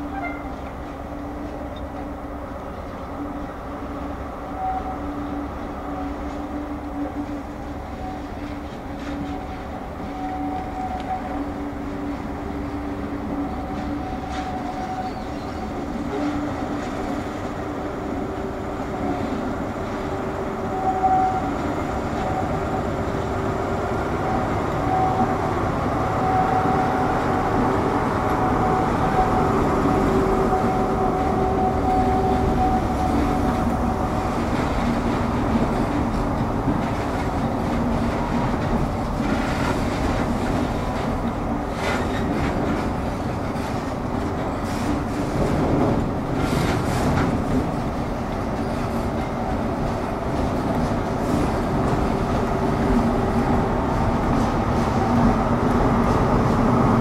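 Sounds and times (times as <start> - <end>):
diesel locomotive engine: 0.0 - 57.0.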